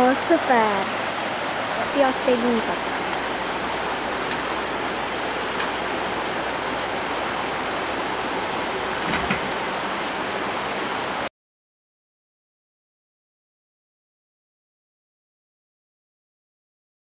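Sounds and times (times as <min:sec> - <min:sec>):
stream water flowing: 0:00.0 - 0:11.3.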